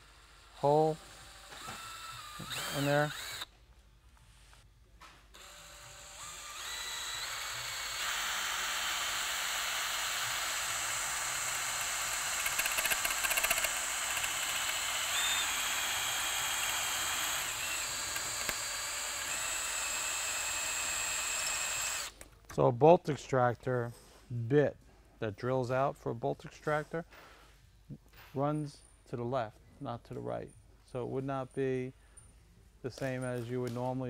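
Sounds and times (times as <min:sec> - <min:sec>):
cordless drill whining: 0:00.0 - 0:03.5, 0:05.3 - 0:22.2
drill bit grinding into metal: 0:00.5 - 0:03.5, 0:05.4 - 0:22.2.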